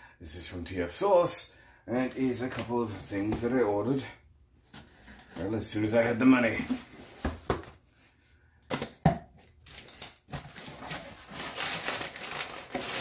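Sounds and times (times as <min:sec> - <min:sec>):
rustle of cardboard and paper: 0:10.3 - 0:13.0.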